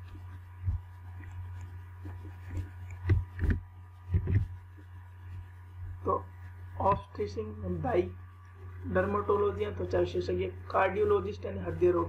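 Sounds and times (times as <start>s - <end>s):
dull thumps and clicks: 0.0s - 4.6s
low electrical hum: 0.0s - 12.0s.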